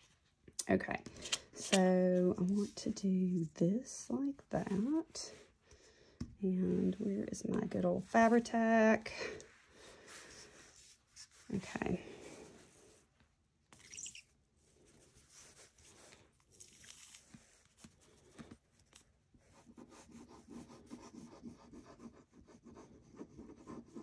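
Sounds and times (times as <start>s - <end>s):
paper rustling and rubbing: 10.1s - 13.0s.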